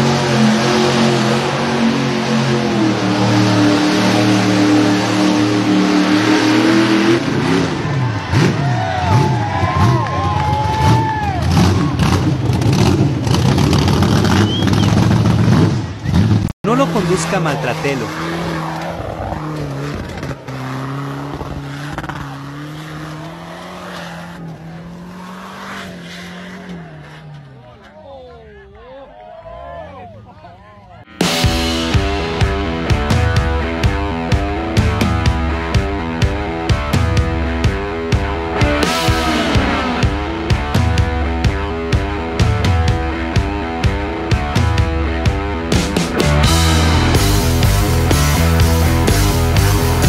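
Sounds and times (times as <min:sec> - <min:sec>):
engine at high revs: 0:00.0 - 0:10.1, 0:10.7 - 0:27.8, 0:31.3 - 0:50.0.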